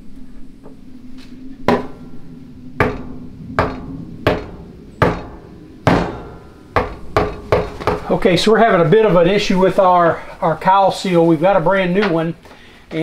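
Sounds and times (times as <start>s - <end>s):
mallet striking metal: 1.7s - 2.1s, 2.8s - 8.1s.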